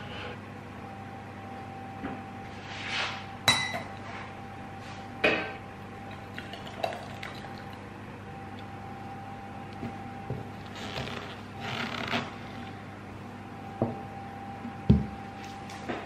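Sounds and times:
faint steady hum: 0:00.0 - 0:16.0
kitchenware clinking: 0:03.5 - 0:04.0
jam pouring: 0:06.1 - 0:07.8.

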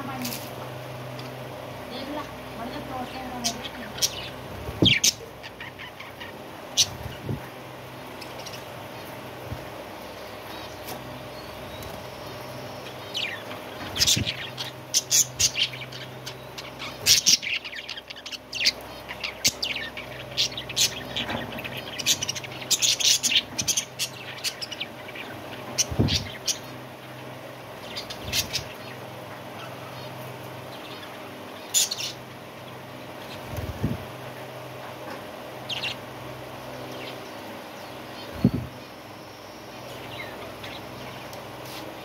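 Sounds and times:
steady low hum: 0:00.0 - 0:42.0
budgerigars chirping: 0:02.0 - 0:07.0, 0:11.4 - 0:27.2, 0:27.8 - 0:29.0, 0:30.7 - 0:32.2.

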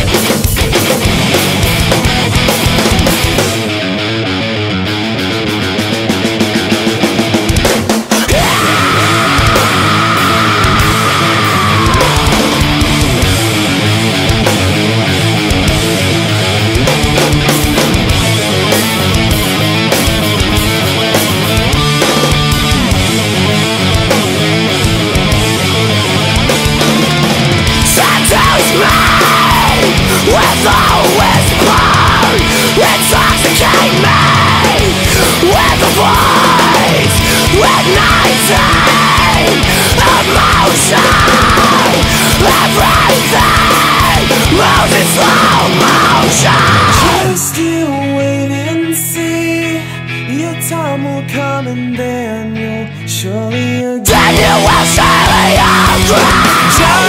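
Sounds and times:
drum hits: 0:00.0 - 0:03.7, 0:07.2 - 0:14.9
bass guitar: 0:00.0 - 0:57.0
electric guitar riff: 0:00.0 - 0:57.0
heavy metal band playing: 0:00.0 - 0:57.0.

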